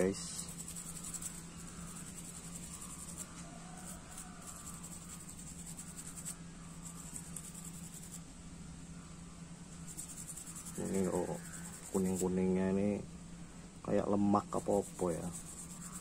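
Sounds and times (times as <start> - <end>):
toothbrush scrubbing circuit board: 0.0 - 8.2, 9.9 - 12.4, 14.5 - 16.0
high insect trill: 0.0 - 16.0.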